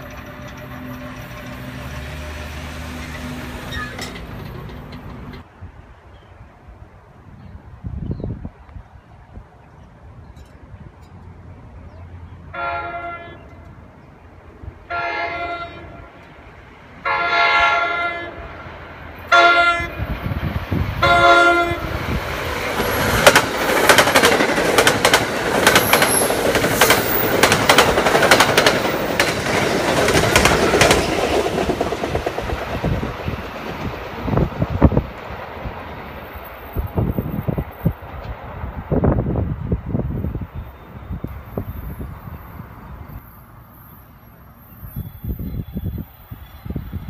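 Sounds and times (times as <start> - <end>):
train wheels clicking over rail joints: 0.0 - 5.5, 21.8 - 36.7
train rolling rumble: 0.0 - 6.0, 6.7 - 47.0
train air horn blasts: 12.5 - 13.6, 14.9 - 16.2, 17.0 - 18.6, 19.3 - 20.1, 21.0 - 22.0.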